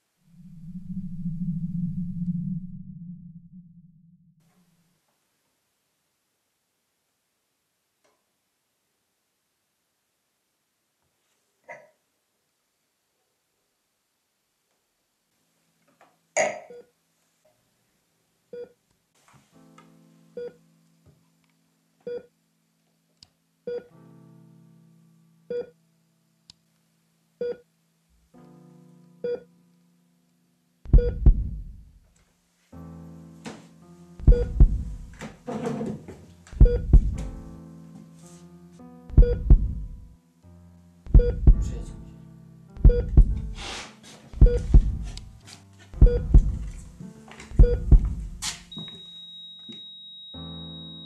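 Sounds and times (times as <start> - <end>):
low sustained synth tones: 0.0 - 4.4
heavy deep bass hits: 30.9 - 31.9, 34.2 - 35.2, 36.6 - 37.4, 39.1 - 40.0, 41.1 - 42.0, 42.8 - 43.6, 44.4 - 45.3, 46.0 - 46.9, 47.6 - 48.4
repeated keyboard note: 34.2 - 35.2, 36.6 - 37.5, 39.1 - 40.1, 41.1 - 42.0, 42.8 - 43.6, 44.4 - 45.2, 46.0 - 46.8, 47.5 - 48.4.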